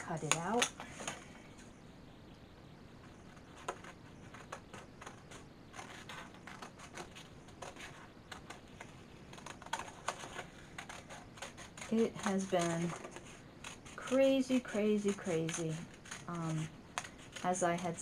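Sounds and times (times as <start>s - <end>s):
scissors snipping paper: 9.3s - 18.0s.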